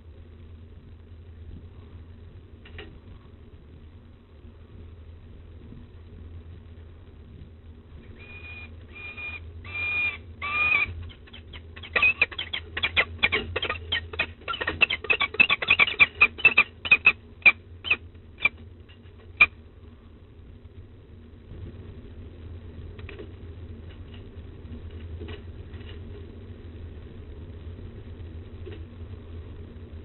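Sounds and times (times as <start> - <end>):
falcons calling: 8.1 - 18.6.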